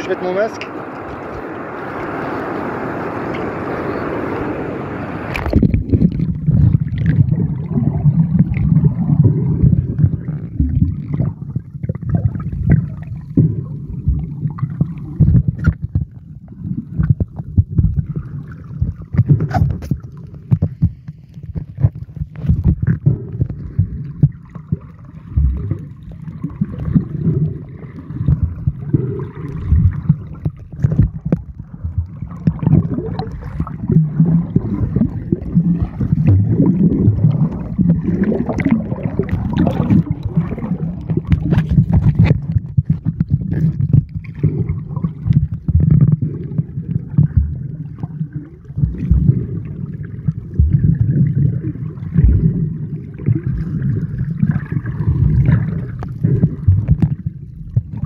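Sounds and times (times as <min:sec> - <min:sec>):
underwater rumble of moving water: 0:00.0 - 0:58.0
small clicks and crackles: 0:16.9 - 0:34.0, 0:38.5 - 0:49.4.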